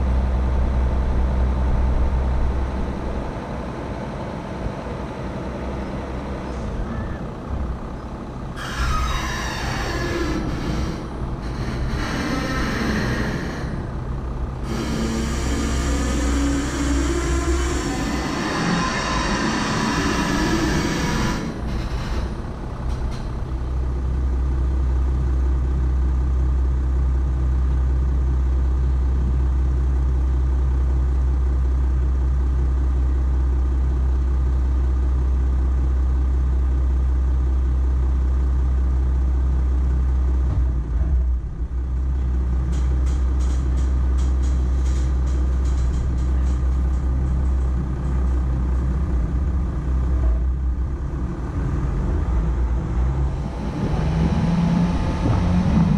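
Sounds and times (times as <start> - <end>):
pickup engine rumbling: 0.0 - 55.9
vehicle jolt: 39.4 - 55.9
sharp clicks and rattles: 42.2 - 49.6.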